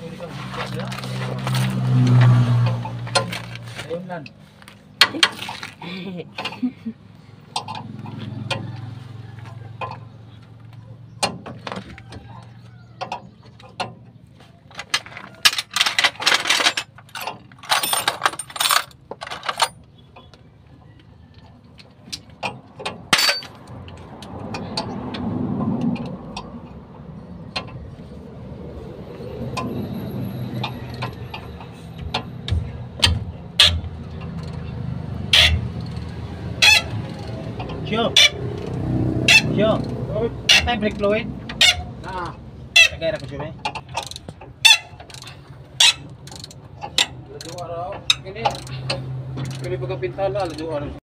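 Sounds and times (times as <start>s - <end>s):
wrench clicking on a bolt: 30.6s - 50.9s.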